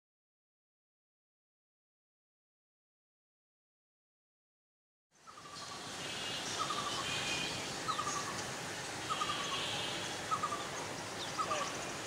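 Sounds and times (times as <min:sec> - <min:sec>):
birds chirping: 0:05.2 - 0:12.0
steady background hiss: 0:05.2 - 0:12.0
bird repeating falling call: 0:05.4 - 0:08.4, 0:09.1 - 0:11.9.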